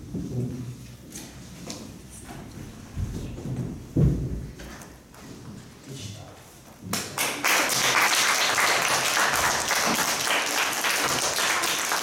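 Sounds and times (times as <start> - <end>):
audience applauding: 7.0 - 12.0.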